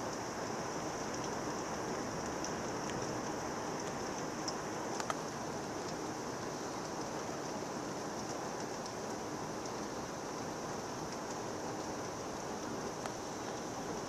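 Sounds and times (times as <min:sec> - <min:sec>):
heavy rain downpour: 0:00.0 - 0:14.0.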